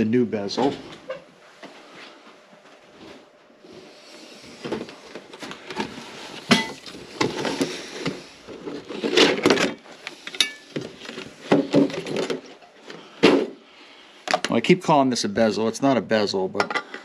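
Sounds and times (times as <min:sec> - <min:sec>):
objects clattering on workbench: 0:04.5 - 0:13.6, 0:14.2 - 0:14.6, 0:16.6 - 0:17.0.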